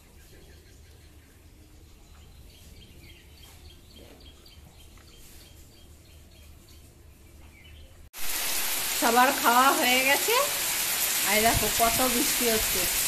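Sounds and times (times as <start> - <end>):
small birds chirping: 0.0 - 8.1.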